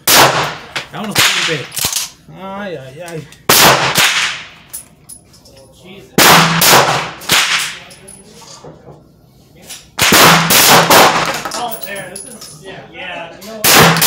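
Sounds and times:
shotgun shots with echo: 0.0 - 1.6, 3.5 - 4.6, 6.2 - 7.8, 10.0 - 11.4, 13.6 - 14.0.

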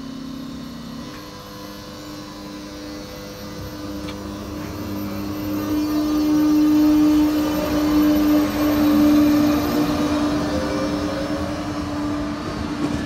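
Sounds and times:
electric locomotive hum: 0.0 - 13.0
wheels rumbling on rail: 3.0 - 13.0.

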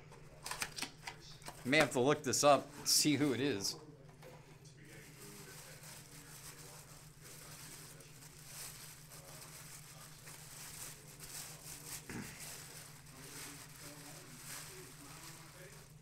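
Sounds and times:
handling rustling and clicks: 0.0 - 1.9.

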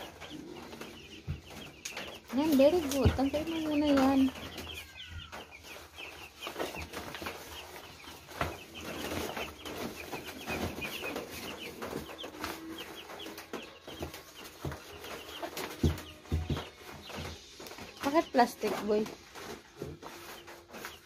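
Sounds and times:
chicks peeping: 0.0 - 21.0
paper bedding rustling: 5.3 - 21.0.

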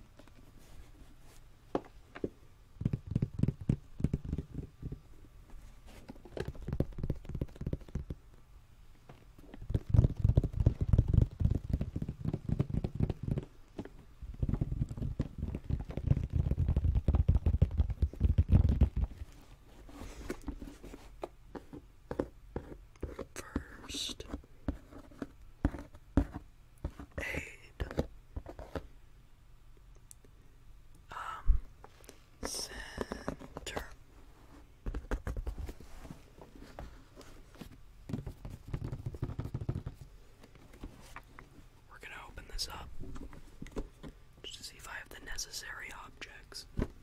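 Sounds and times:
fingers tapping on plastic case: 2.8 - 5.0, 6.2 - 8.2, 9.5 - 19.2, 38.1 - 40.0.

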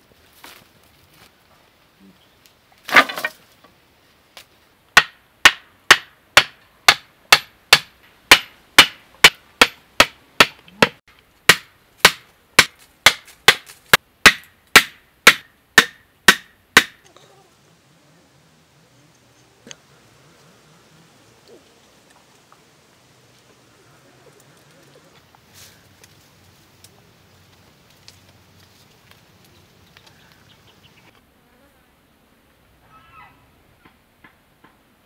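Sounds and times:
wooden sticks clattering onto earth: 2.8 - 3.8, 4.4 - 17.2
tool striking wood: 5.0 - 17.0.

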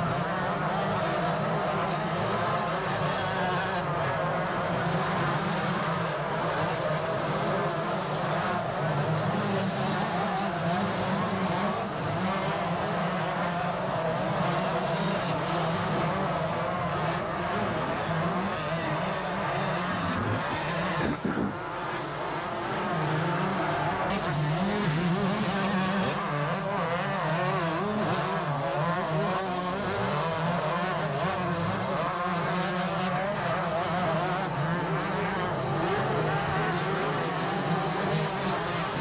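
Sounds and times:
motocross bikes racing: 0.0 - 39.0.

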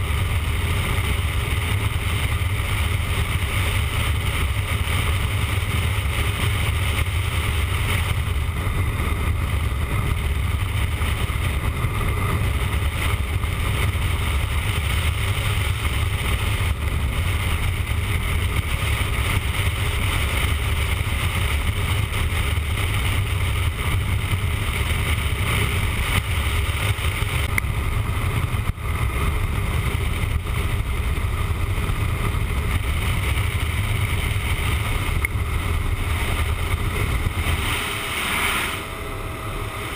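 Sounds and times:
motorcycle engine: 0.0 - 39.9
wind rushing on microphone: 0.0 - 39.9.

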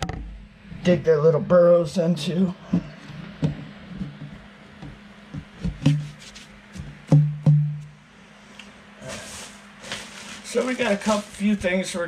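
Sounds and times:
hollow thumps on plastic enclosure: 2.7 - 7.9.

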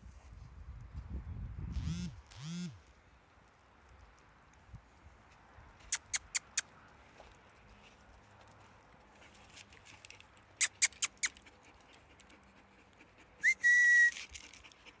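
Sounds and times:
person whistling: 13.4 - 14.2.

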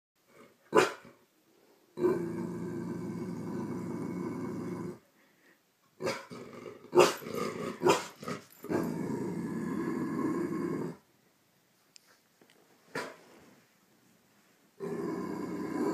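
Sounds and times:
dog barking: 0.7 - 1.0, 7.0 - 7.2, 7.8 - 8.2
dog growling: 2.0 - 5.0, 6.0 - 11.0, 14.8 - 15.9.

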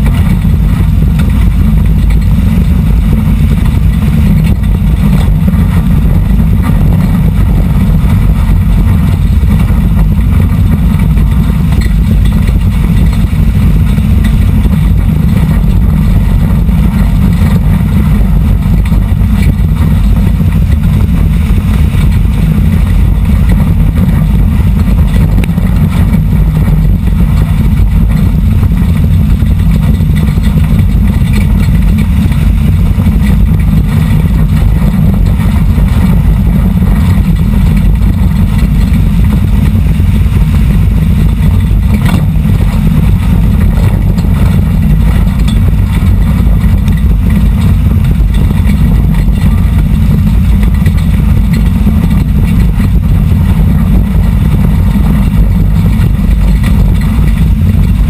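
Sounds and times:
race car engine droning: 0.0 - 58.0.

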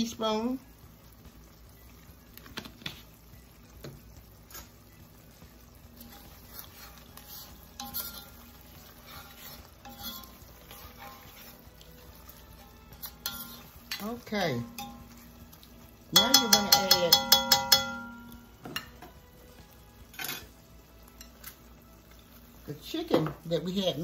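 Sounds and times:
onions frying: 0.0 - 24.0
metal spoon scraping pot: 6.0 - 11.7, 12.9 - 14.1.

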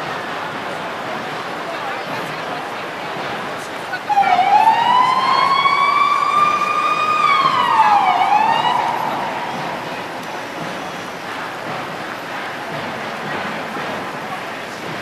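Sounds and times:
emergency vehicle siren wailing: 4.0 - 11.4.

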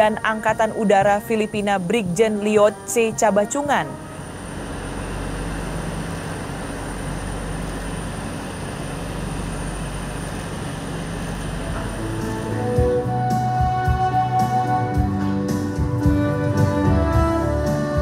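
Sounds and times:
faint high whine: 0.0 - 13.6
low hum: 0.0 - 15.0
jet aircraft drone: 0.0 - 17.9.

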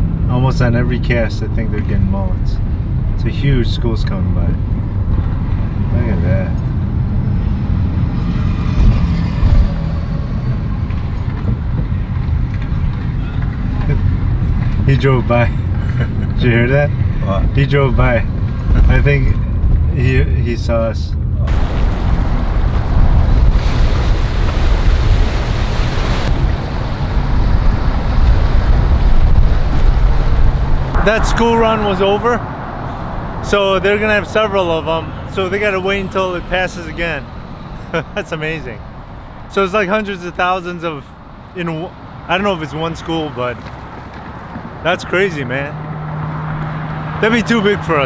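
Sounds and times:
low bumps: 0.0 - 38.3
car road and engine rumble: 0.0 - 48.0
wind buffeting microphone: 21.1 - 35.3
choppy water washing: 21.5 - 32.8.

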